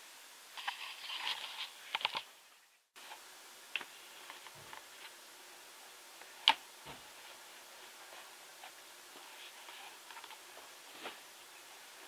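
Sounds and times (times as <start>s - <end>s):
faint steady hiss: 0.0s - 12.0s.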